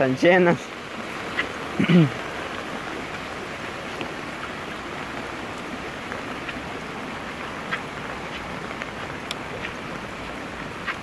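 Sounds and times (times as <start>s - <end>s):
heavy rain on flooded street: 0.0s - 11.0s
drops ticking: 6.1s - 11.0s.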